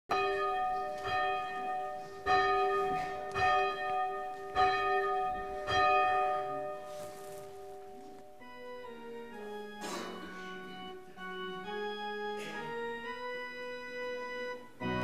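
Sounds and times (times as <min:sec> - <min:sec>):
church bell tolling: 0:00.1 - 0:08.2.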